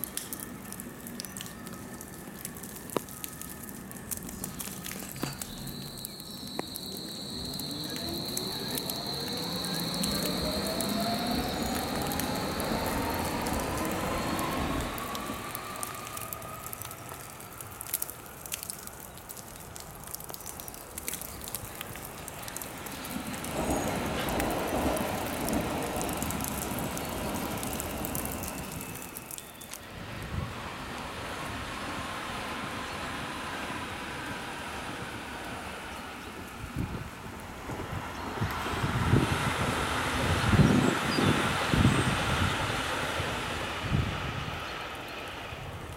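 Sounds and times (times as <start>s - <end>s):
sharp clicks and crackles: 0.0s - 29.8s
electric train rolling past: 4.8s - 17.9s, 22.7s - 45.9s
electric train whining: 5.2s - 17.7s.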